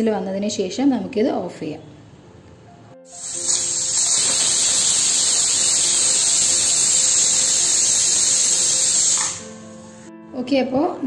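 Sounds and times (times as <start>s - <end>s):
pressure cooker whistling: 3.1s - 9.7s.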